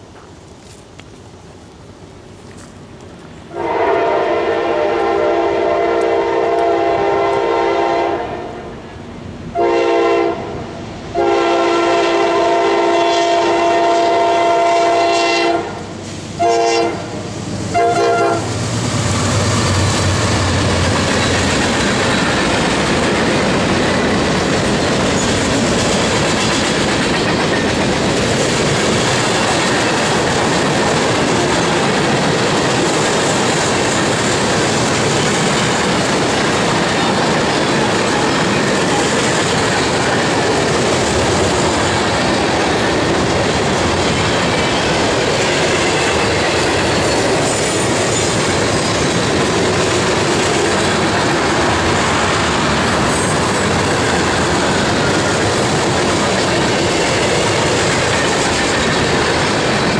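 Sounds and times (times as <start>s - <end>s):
train cars clickety-clack: 2.3s - 8.2s, 11.2s - 59.9s
train air horn blasts: 3.5s - 8.7s, 9.5s - 18.6s
locomotive engine rumble: 15.9s - 59.9s.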